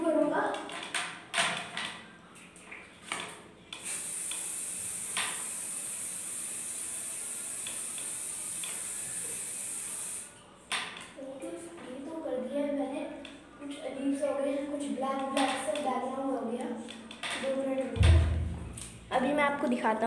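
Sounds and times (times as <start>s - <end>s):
aerosol spray hissing: 3.8s - 10.3s.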